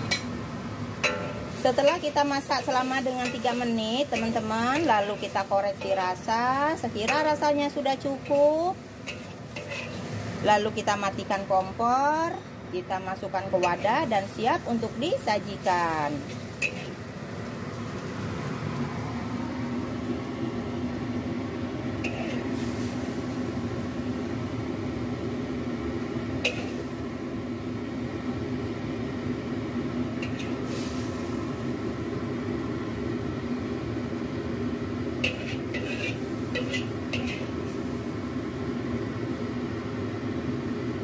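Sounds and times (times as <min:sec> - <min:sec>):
metal spatula scraping wok: 0:08.1 - 0:10.4, 0:13.6 - 0:17.0, 0:22.0 - 0:23.2, 0:26.4 - 0:26.9, 0:30.2 - 0:31.3, 0:35.2 - 0:38.0.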